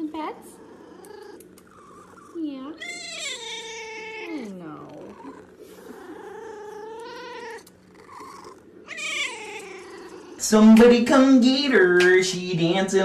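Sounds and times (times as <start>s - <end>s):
cat meowing: 0.6s - 10.4s.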